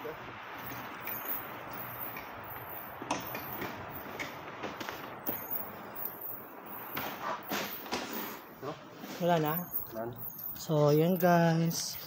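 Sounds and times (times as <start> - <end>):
sharp knocks and clicks: 2.1 - 5.6.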